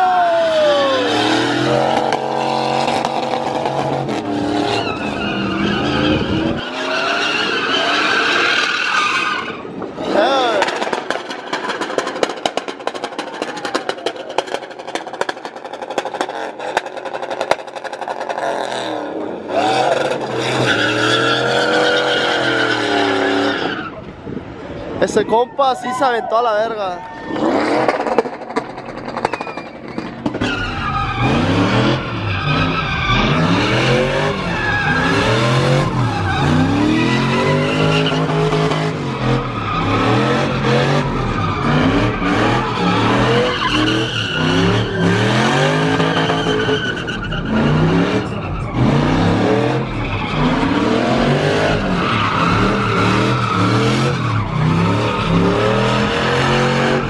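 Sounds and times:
truck engine revving: 0:00.0 - 0:08.6, 0:27.3 - 0:57.0
tyres squealing: 0:29.2 - 0:57.0.

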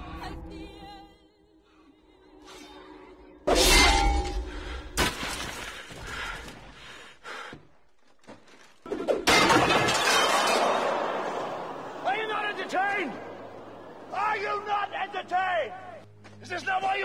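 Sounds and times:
metal goblets clattering and smashing: 0:09.3 - 0:10.8.

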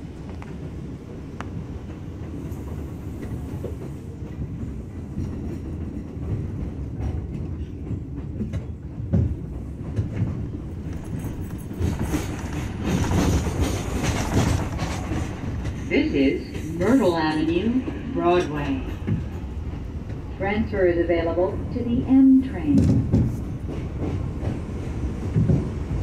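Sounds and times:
subway car rumbling: 0:00.0 - 0:26.0
wheels clattering over rail joints: 0:06.0 - 0:15.9.

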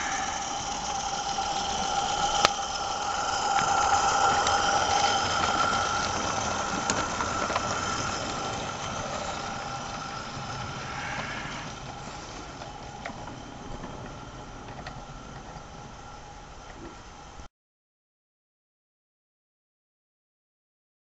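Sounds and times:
model steam locomotive running: 0:00.0 - 0:17.5.

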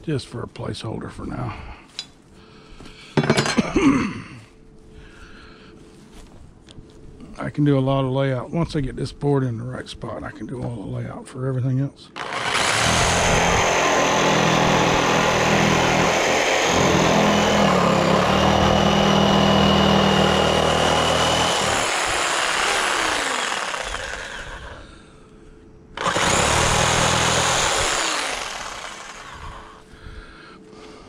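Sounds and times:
loud motor running and revving: 0:12.2 - 0:24.8, 0:26.0 - 0:29.8.

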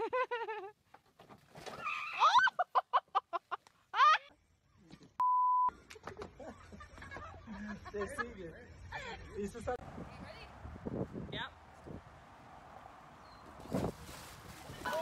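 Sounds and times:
electronic censor bleep: 0:05.2 - 0:05.7.

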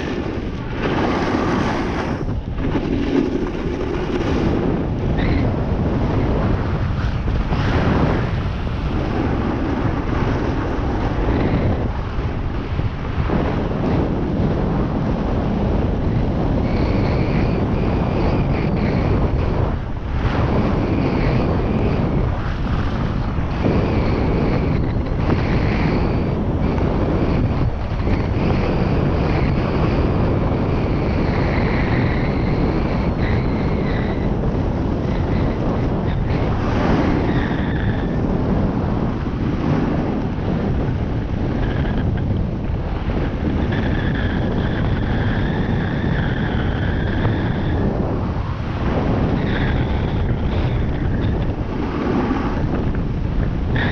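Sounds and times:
skis sliding on snow: 0:00.0 - 0:04.6
wind rushing over microphone: 0:00.0 - 0:53.9.

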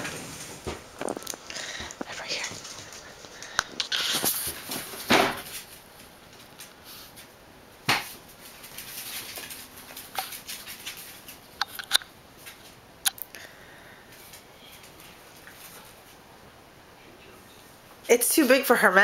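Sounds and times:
dogs tussling on tile floor: 0:00.0 - 0:07.3, 0:07.9 - 0:11.6.

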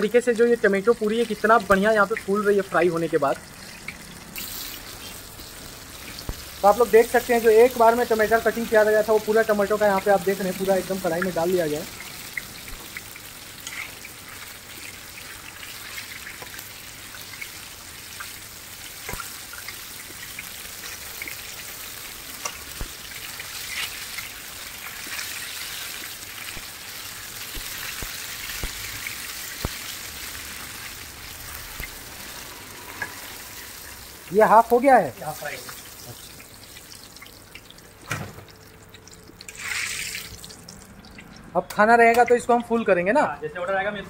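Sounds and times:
oil sizzling while deep-frying: 0:00.0 - 0:43.8.

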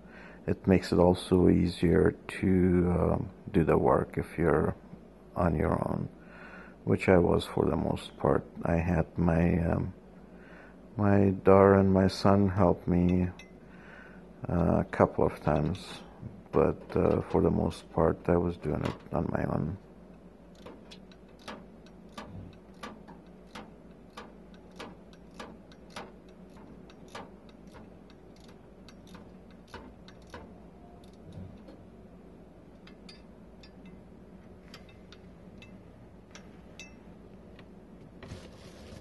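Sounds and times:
ratcheting wrench clicking: 0:20.5 - 0:31.3.

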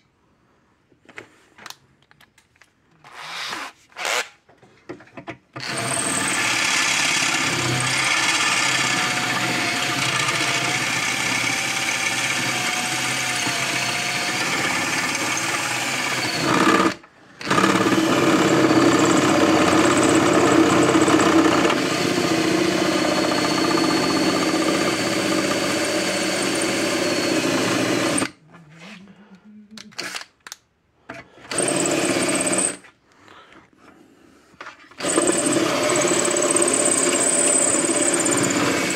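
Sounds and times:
power drill boring sheet metal: 0:05.6 - 0:28.3, 0:31.5 - 0:32.8, 0:35.0 - 0:38.9.

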